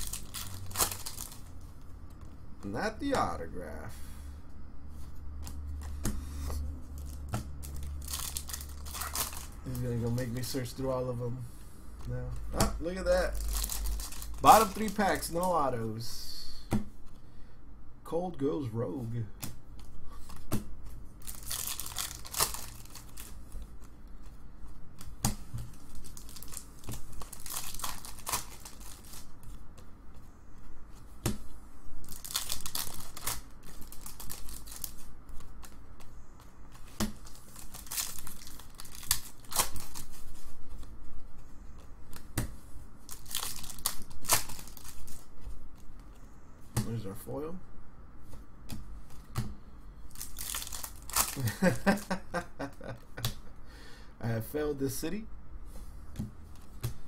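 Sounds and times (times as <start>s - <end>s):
card pack wrappers tearing: 0.0s - 1.5s, 6.9s - 10.6s, 12.8s - 15.6s, 21.2s - 23.4s, 25.7s - 29.4s, 32.0s - 35.7s, 37.2s - 40.4s, 43.0s - 45.3s, 50.1s - 52.8s
cards shuffling: 5.0s - 10.8s, 12.0s - 15.6s, 19.4s - 47.0s, 50.1s - 53.4s.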